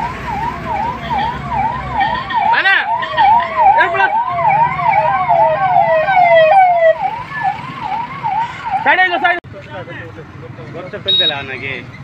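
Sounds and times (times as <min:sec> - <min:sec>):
fire engine siren yelping: 0:00.0 - 0:09.4.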